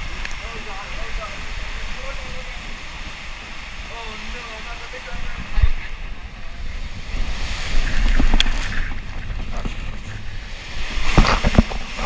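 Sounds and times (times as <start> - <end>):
rushing water: 0.0 - 12.0
wind buffeting microphone: 0.0 - 12.0
sharp splashes and knocks: 7.2 - 12.0.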